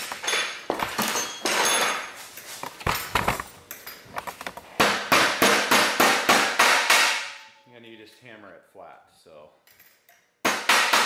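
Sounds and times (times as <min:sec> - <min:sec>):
metal tools clattering: 0:00.0 - 0:04.4.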